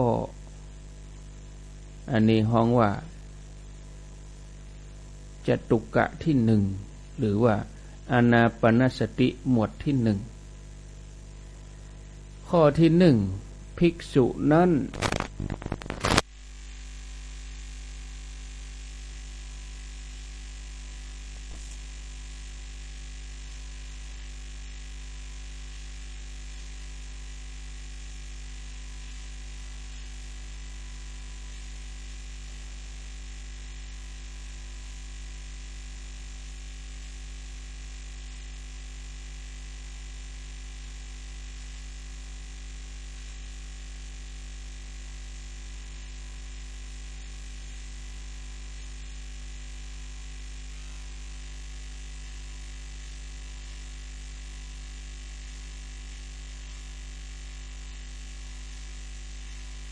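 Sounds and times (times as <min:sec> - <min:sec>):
constant hiss: 0:00.0 - 0:10.6, 0:11.4 - 0:24.8
electrical mains hum: 0:00.0 - 0:59.9.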